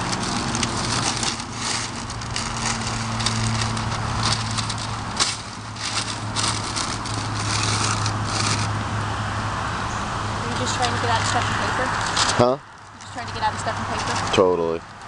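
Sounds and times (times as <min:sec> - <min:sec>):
newspaper crumpling and rustling: 0:00.0 - 0:08.8.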